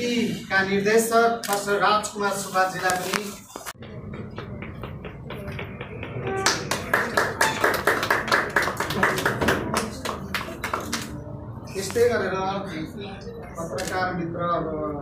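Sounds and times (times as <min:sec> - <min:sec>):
people applauding: 0:04.3 - 0:11.2.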